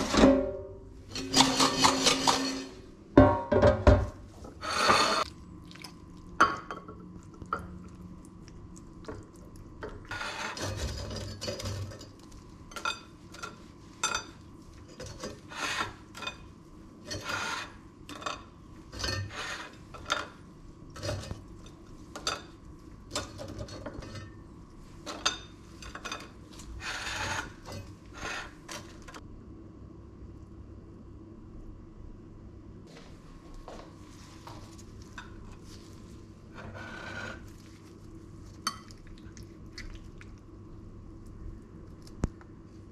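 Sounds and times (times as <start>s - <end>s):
scraping in metal basket: 1.1s - 2.8s, 4.5s - 5.2s.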